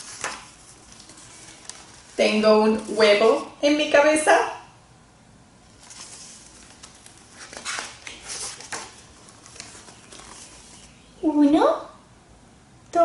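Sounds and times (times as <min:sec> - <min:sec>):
paper page rustling: 0:00.0 - 0:03.0, 0:05.7 - 0:11.0.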